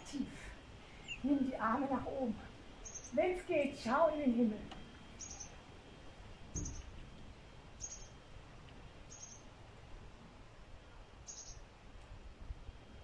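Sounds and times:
low outdoor background hiss: 0:00.0 - 0:13.0
small bird chirping: 0:01.0 - 0:01.3, 0:02.8 - 0:03.2, 0:05.1 - 0:05.6, 0:06.5 - 0:07.0, 0:07.8 - 0:08.2, 0:09.1 - 0:09.5, 0:11.2 - 0:11.7.

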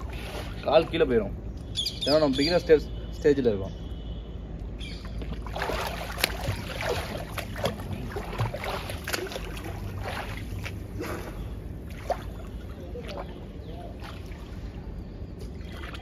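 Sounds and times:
swimmer splashing in pool: 0:05.3 - 0:14.8.

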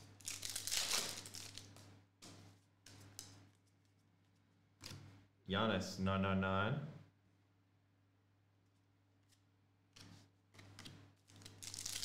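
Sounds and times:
foil wrapper crinkling: 0:00.2 - 0:01.7, 0:11.4 - 0:12.0
cards rustling: 0:10.6 - 0:12.0.

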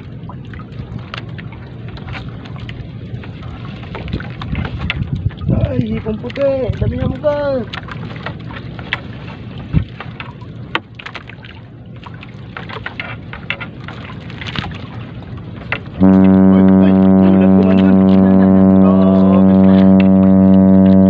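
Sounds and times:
low rumble: 0:15.0 - 0:21.0.

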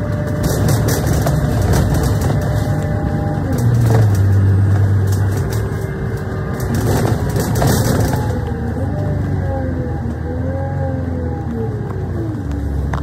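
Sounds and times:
panels and windows rattling: 0:00.0 - 0:08.5
bus engine drone: 0:00.0 - 0:13.0.

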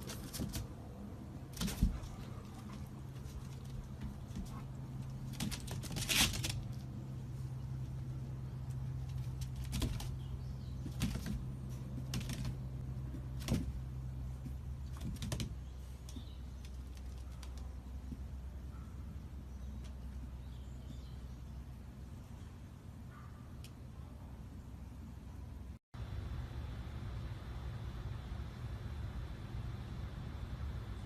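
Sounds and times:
dog claws clicking on patio: 0:00.0 - 0:00.8, 0:01.5 - 0:07.0, 0:07.8 - 0:18.4
steady low hum: 0:00.0 - 0:31.0.

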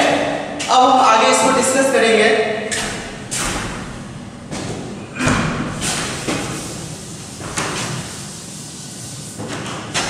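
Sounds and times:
duster rubbing on chalkboard: 0:06.1 - 0:10.0.

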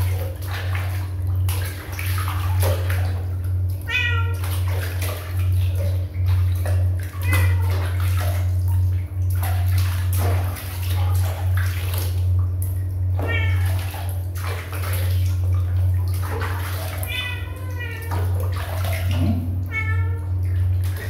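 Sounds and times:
steady low hum: 0:00.0 - 0:21.0
water splashing in a plastic basin: 0:00.0 - 0:21.0
kitten meowing: 0:03.9 - 0:04.4, 0:13.2 - 0:13.8, 0:17.1 - 0:18.2, 0:19.6 - 0:20.2.

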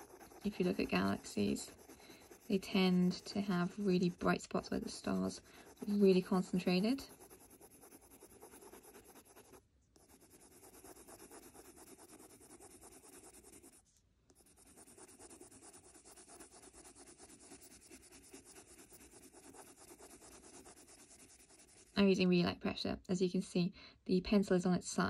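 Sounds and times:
pencil scratching on paper: 0:00.0 - 0:22.1.

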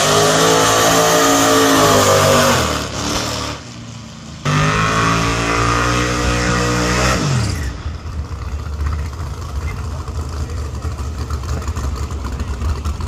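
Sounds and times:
drag racing car engine passing: 0:00.0 - 0:13.0
engine running at high revs: 0:00.0 - 0:13.0.

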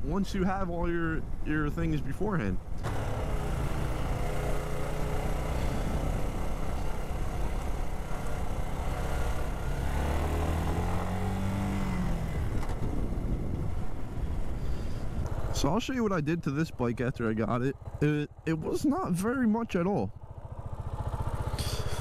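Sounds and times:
motorcycle engine running: 0:02.6 - 0:15.7, 0:16.3 - 0:22.0
wind on microphone: 0:12.0 - 0:15.4.

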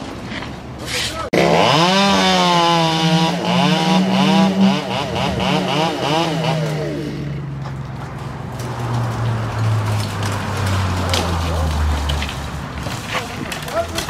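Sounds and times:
two-stroke saw engine revving: 0:01.3 - 0:07.5.

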